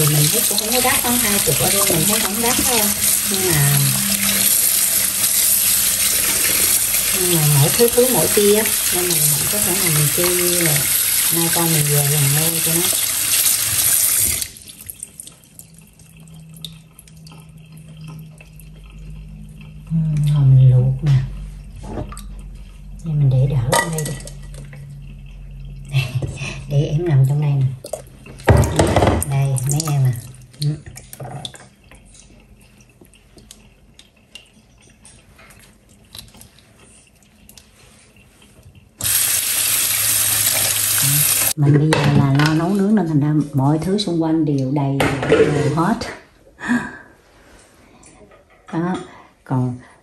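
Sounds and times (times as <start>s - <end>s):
water dripping and trickling: 0.0s - 41.6s
steady low hum: 15.3s - 36.0s.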